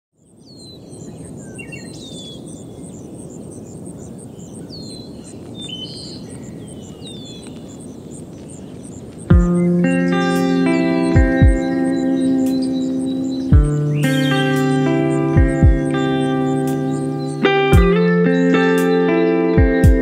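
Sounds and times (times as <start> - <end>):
birds whistling: 0.2 - 20.0
repeating high chirp: 9.3 - 20.0.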